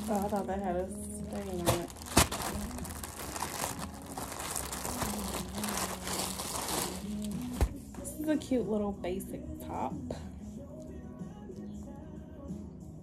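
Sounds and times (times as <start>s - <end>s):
plastic bags crinkling: 0.0s - 7.8s.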